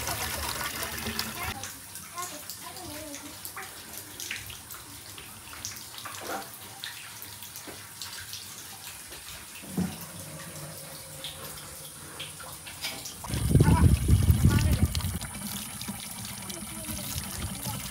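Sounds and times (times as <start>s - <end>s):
water running and splashing: 0.0s - 17.9s.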